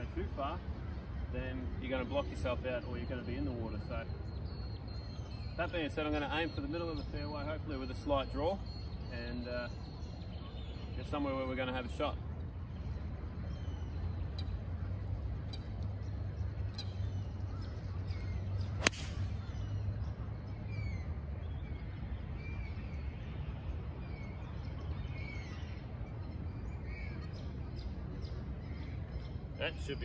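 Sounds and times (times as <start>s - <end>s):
birds chirping: 0.0s - 30.0s
golf club striking ball: 18.7s - 19.6s.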